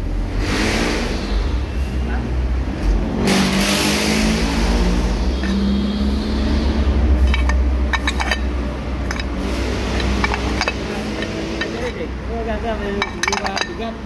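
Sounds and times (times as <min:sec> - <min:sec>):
low workshop rumble: 0:01.0 - 0:14.0
light metallic clinks: 0:07.2 - 0:12.1, 0:12.9 - 0:14.0.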